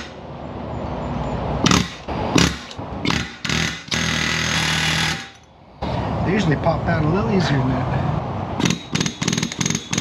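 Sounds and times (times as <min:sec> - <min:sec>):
pneumatic air hammer rattling: 0:01.6 - 0:05.5, 0:08.6 - 0:10.0.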